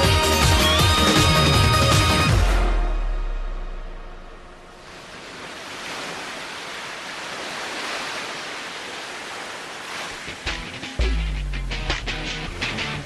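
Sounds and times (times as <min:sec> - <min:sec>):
background music: 0:00.0 - 0:04.8, 0:10.4 - 0:13.0.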